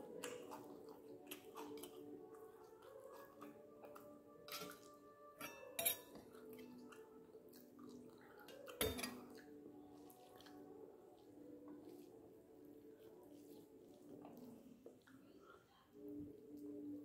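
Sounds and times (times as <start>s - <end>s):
steel spoon clinking on plate: 5.4s - 6.2s.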